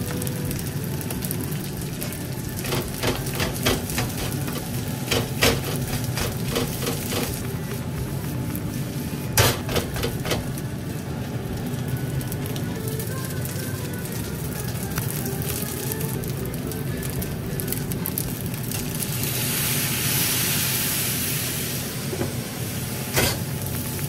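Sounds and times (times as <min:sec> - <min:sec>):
gas flame hiss: 0:00.0 - 0:24.0
rice sizzling in a wok: 0:00.0 - 0:24.0.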